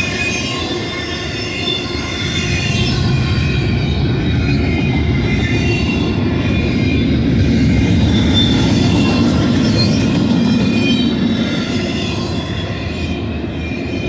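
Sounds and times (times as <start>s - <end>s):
high wheel squeal: 0.0s - 14.0s
train wheels rumbling on rail: 0.0s - 14.0s.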